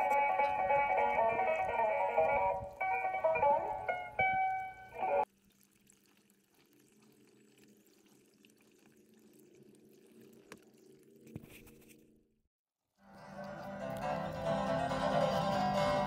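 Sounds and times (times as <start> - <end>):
steer drinking water lapping: 0.0 - 11.2.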